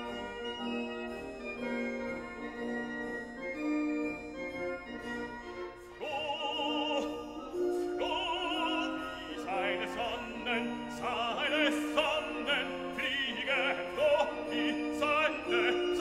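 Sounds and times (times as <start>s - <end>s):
operatic singing voice: 6.0s - 16.0s.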